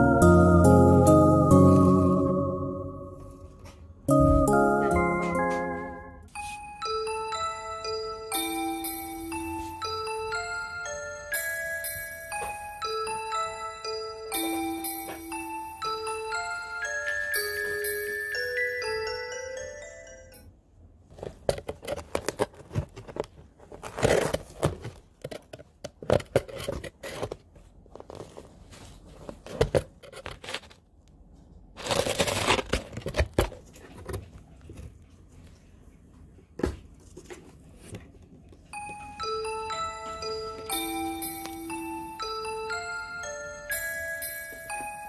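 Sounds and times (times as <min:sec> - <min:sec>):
light glockenspiel music: 0:00.0 - 0:20.6, 0:38.7 - 0:45.0
tearing scrapes: 0:31.8 - 0:33.2.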